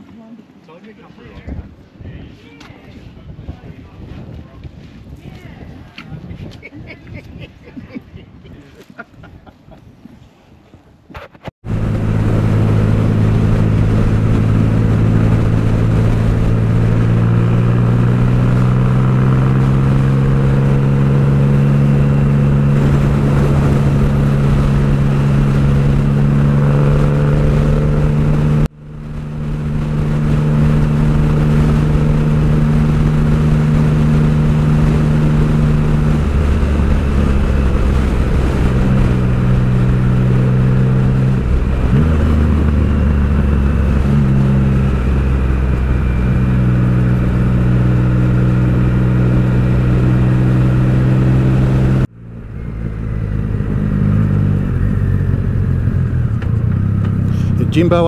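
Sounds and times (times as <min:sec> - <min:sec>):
wind noise on microphone: 0:01.2 - 0:58.0
motorcycle engine cruising: 0:11.6 - 0:58.0.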